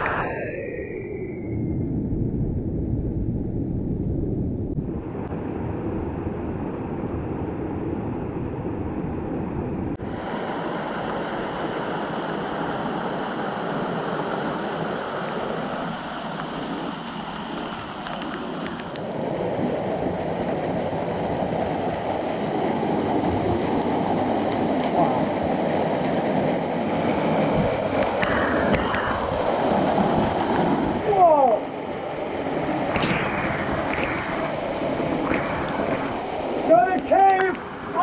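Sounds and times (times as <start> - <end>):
rushing creek water and waterfalls: 10.0 - 38.0.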